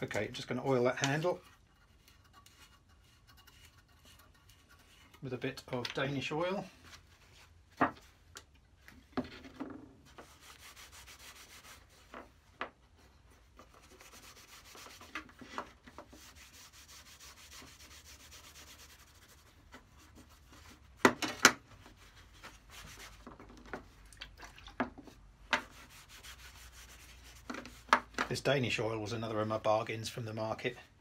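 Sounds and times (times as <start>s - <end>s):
cloth rubbing wood: 10.0s - 12.4s, 13.0s - 21.0s, 21.8s - 23.4s, 25.5s - 28.3s.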